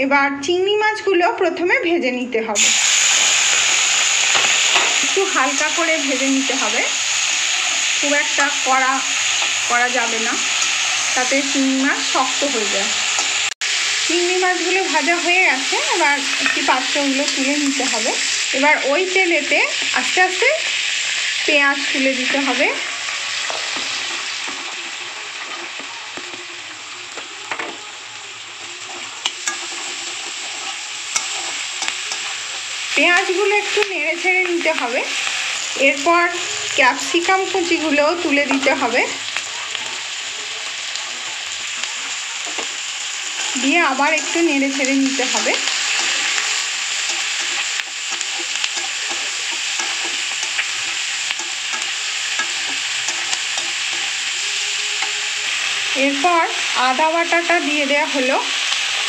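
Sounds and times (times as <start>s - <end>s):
onions sizzling in oil: 2.5s - 59.0s
metal spatula scraping a pan: 14.8s - 18.4s, 21.0s - 33.9s, 35.2s - 56.0s.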